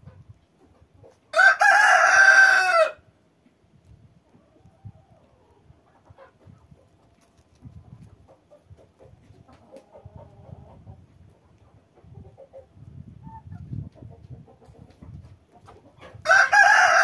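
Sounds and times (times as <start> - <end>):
chickens clucking: 0.0 - 1.4, 4.2 - 16.3.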